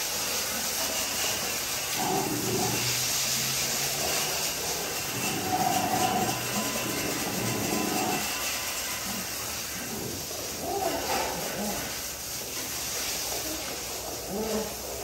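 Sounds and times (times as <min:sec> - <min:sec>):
steady background hiss: 0:00.0 - 0:15.0
dogs whining: 0:01.9 - 0:12.1, 0:13.6 - 0:15.0.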